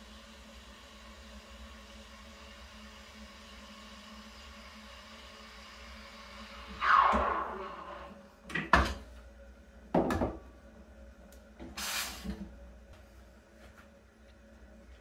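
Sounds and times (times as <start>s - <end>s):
steam wand hissing: 11.7s - 12.4s.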